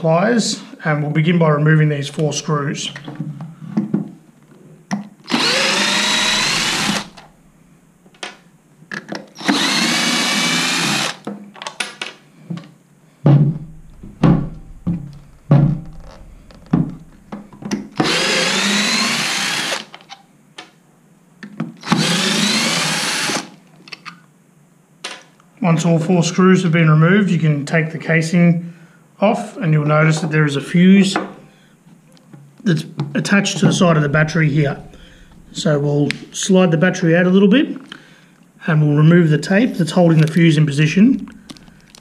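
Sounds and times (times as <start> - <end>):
cordless drill motor whine: 5.3 - 7.5, 9.4 - 11.2, 17.8 - 19.8, 21.8 - 23.5.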